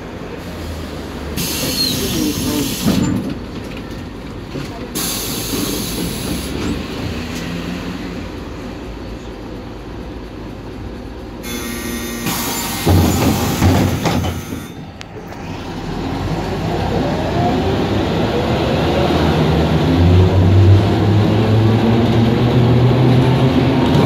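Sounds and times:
bus diesel engine pulling away: 0.0s - 24.0s
pneumatic doors hissing shut: 0.6s - 3.4s, 4.9s - 6.8s, 11.5s - 14.8s.

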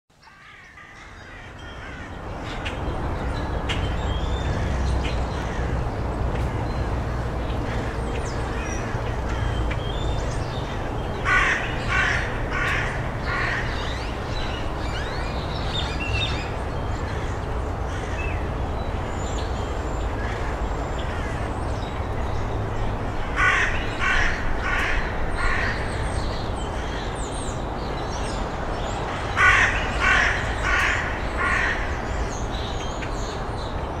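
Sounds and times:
crow cawing: 0.2s - 2.2s, 11.2s - 13.9s, 23.3s - 25.9s, 29.1s - 32.0s.

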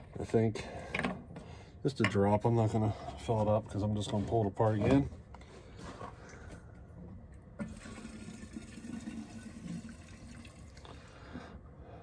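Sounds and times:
fuel trickling into tank: 7.6s - 11.5s.

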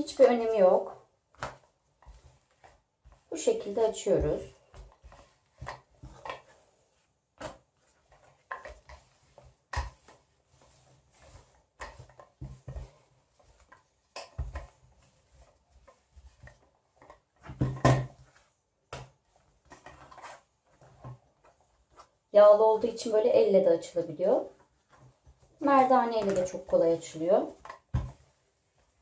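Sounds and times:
rolling pin knocking and rubbing: 0.8s - 6.7s, 7.4s - 22.1s.

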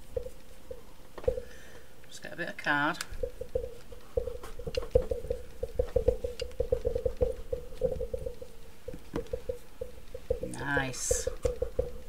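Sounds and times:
steady hum: 0.0s - 12.0s
plastic tools clicking and tapping: 3.0s - 12.0s.

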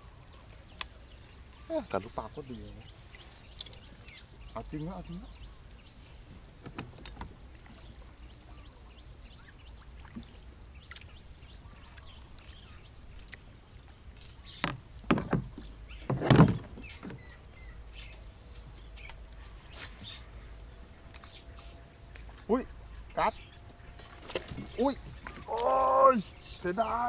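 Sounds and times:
knocks on small boat: 14.6s - 17.2s
loud thumps: 14.6s - 17.2s
light ticks: 21.1s - 22.5s.

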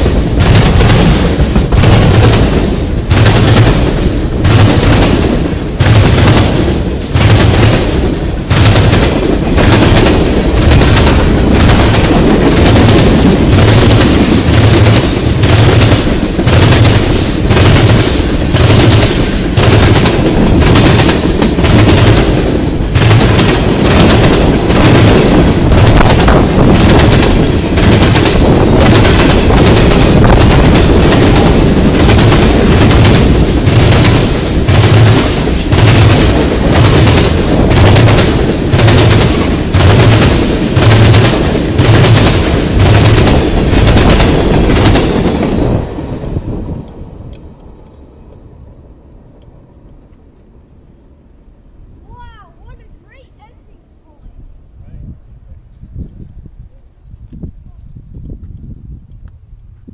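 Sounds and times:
freight train passing: 0.0s - 57.7s
wheels clacking over track: 8.6s - 45.9s.

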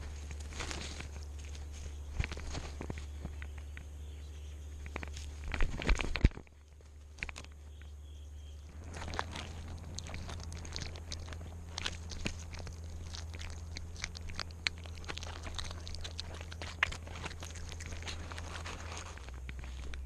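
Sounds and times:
cat crunching a mouse: 4.7s - 8.0s, 8.6s - 20.0s.

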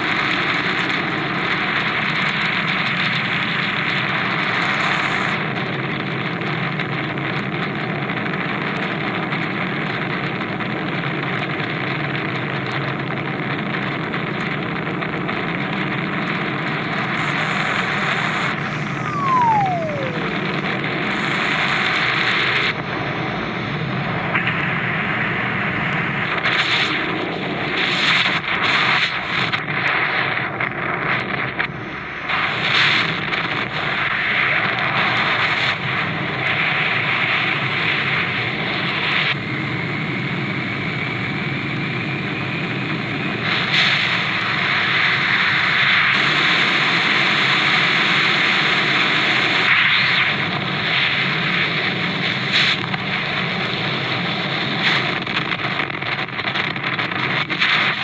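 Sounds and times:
wind rushing past airplane: 18.4s - 21.8s
short falling whistle: 18.6s - 20.8s.

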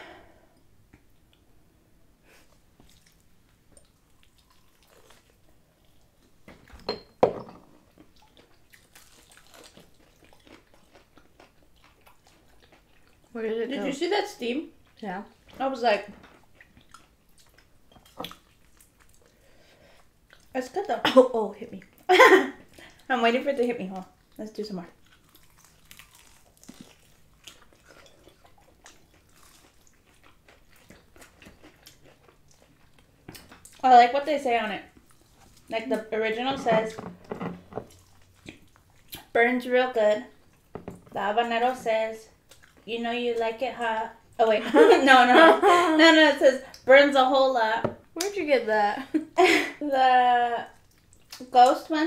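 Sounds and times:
chewing crispy chicken crunches: 3.8s - 6.0s, 8.0s - 13.4s, 25.0s - 33.8s.

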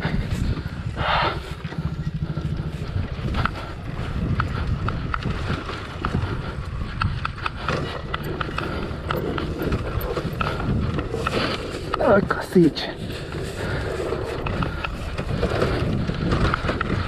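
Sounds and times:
motorcycle engine running: 0.0s - 12.4s
sharp knocks and rattles: 4.2s - 12.2s.

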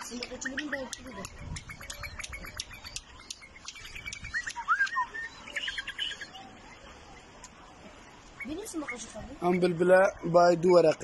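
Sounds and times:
sharp clicks: 0.1s - 5.0s
bird whistles and chirps: 0.3s - 6.8s.

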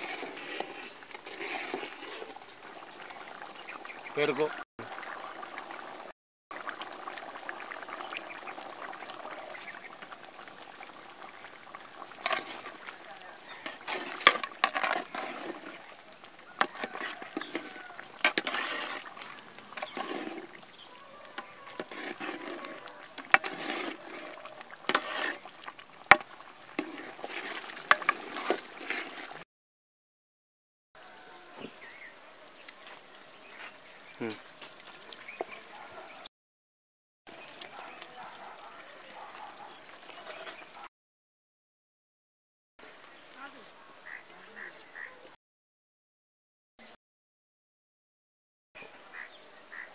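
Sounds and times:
curry bubbling in a pot: 0.0s - 29.4s, 37.3s - 40.8s.

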